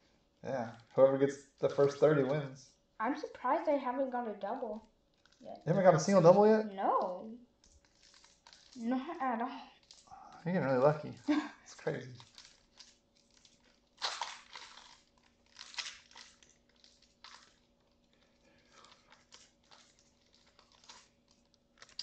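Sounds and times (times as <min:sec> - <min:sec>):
foil wrappers tearing and crinkling: 0:07.0 - 0:10.1, 0:11.8 - 0:22.0.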